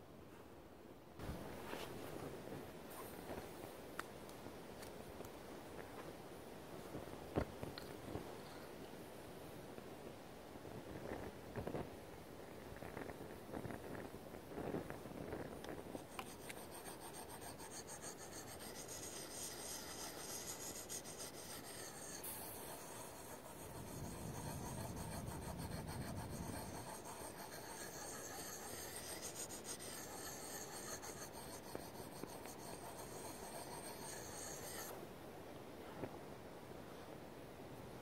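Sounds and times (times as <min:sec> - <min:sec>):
knife blade scraping on stone: 0:16.0 - 0:34.9.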